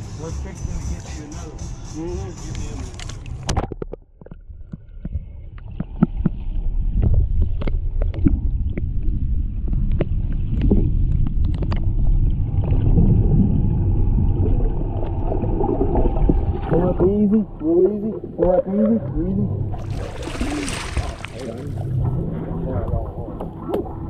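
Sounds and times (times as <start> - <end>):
muffled underwater rumble: 2.4 - 24.0
underwater clicks and ticks: 2.5 - 12.9
splash: 19.8 - 22.0.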